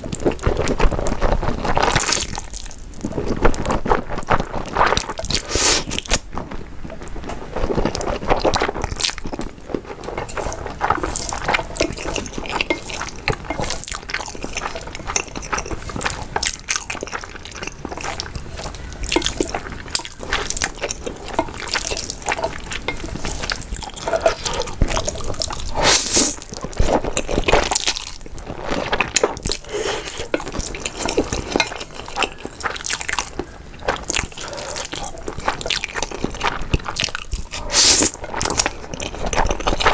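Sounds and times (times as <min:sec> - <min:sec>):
slurping noodles: 0:09.9 - 0:33.3, 0:37.0 - 0:39.9.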